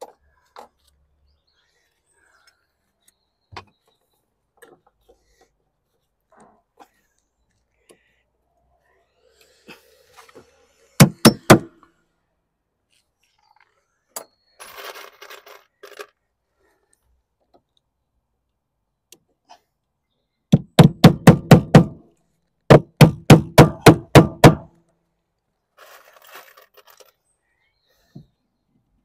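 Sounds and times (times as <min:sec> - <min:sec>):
hammer driving nails: 0:11.0 - 0:11.8, 0:20.5 - 0:22.0, 0:22.7 - 0:24.7.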